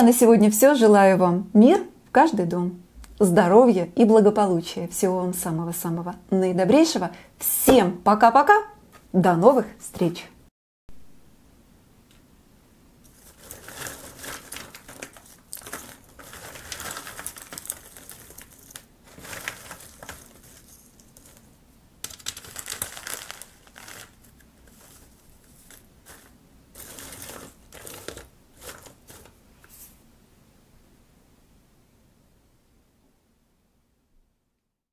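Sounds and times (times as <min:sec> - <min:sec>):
bark chunks rustling and clattering: 0:13.0 - 0:29.4.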